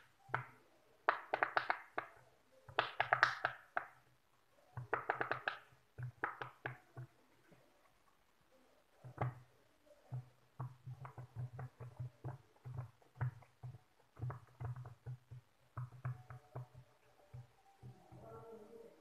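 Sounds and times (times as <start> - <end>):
fidget toy bubbles popping: 0.4 - 4.0.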